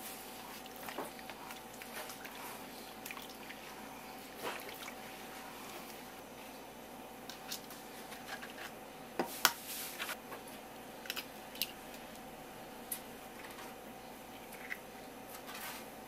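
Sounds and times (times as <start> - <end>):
faint steady hum: 0.0 - 16.0
eggs cracking over steel bowl: 11.0 - 12.3.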